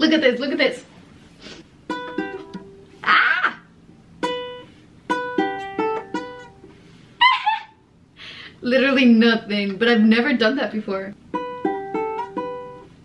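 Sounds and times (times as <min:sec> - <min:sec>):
ukulele being plucked: 0:01.9 - 0:03.0, 0:04.2 - 0:06.8, 0:11.2 - 0:13.0.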